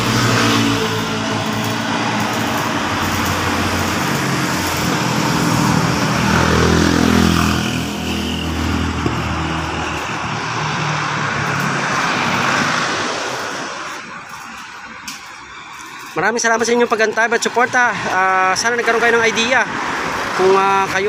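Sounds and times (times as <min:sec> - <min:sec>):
loud vehicle engine running: 0:00.0 - 0:14.1
street traffic: 0:00.0 - 0:21.0.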